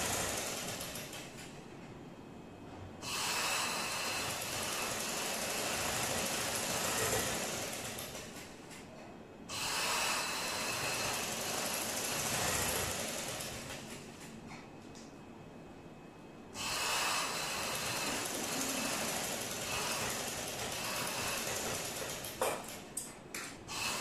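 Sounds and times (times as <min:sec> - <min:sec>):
sewing machine running: 0:00.0 - 0:01.3, 0:03.2 - 0:08.6, 0:09.6 - 0:14.1, 0:16.6 - 0:22.8.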